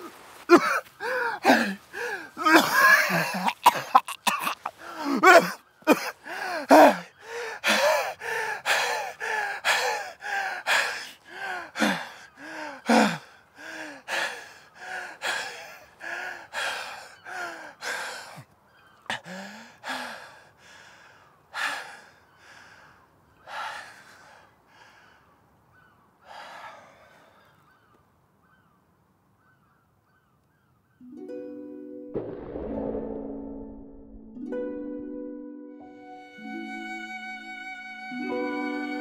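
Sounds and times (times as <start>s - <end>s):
man gasping breaths: 0.6s - 3.4s, 4.6s - 18.5s, 19.1s - 25.4s, 26.2s - 27.6s.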